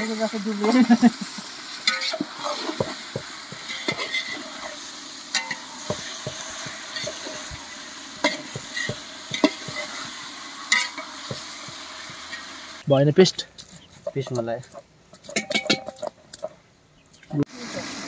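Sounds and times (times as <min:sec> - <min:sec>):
food sizzling in a pot: 0:00.0 - 0:12.9, 0:17.4 - 0:18.0
spoon scraping a pot: 0:01.9 - 0:07.5, 0:08.2 - 0:10.1.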